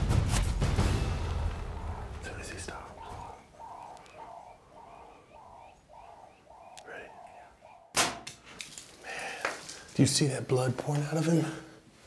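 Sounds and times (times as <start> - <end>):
dove cooing: 1.2 - 8.0
faint bird chirps: 1.5 - 8.0.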